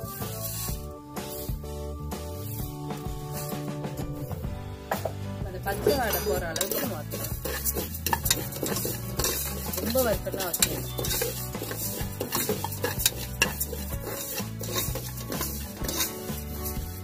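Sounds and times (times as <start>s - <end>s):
spoon scraping a metal pan: 0.0s - 1.6s, 5.7s - 17.0s
dry lentils rustling: 0.0s - 1.7s, 2.3s - 3.8s, 5.6s - 17.0s.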